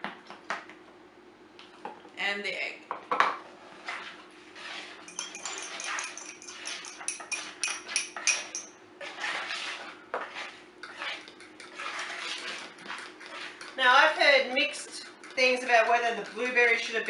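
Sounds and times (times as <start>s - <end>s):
spoon scraping plastic bowl: 3.8s - 17.0s
fork beating egg: 3.9s - 17.0s.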